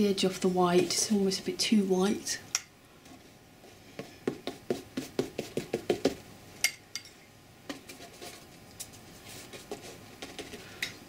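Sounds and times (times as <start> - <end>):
paintbrush tapping on canvas: 4.0 - 6.2.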